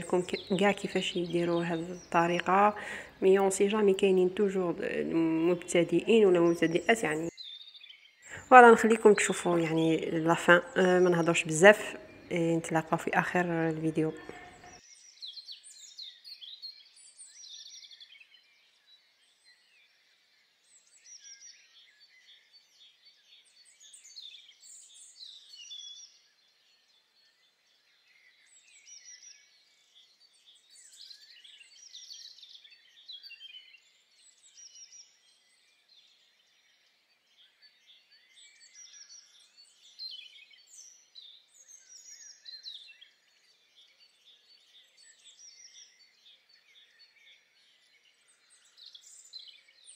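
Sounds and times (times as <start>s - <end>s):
small birds chirping: 0.0s - 49.9s.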